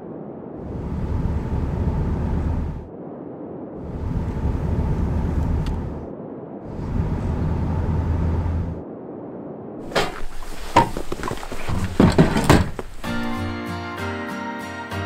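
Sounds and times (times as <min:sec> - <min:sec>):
tyre hiss on snow: 0:09.9 - 0:12.0, 0:12.8 - 0:13.6
plucked-string music: 0:12.9 - 0:15.0.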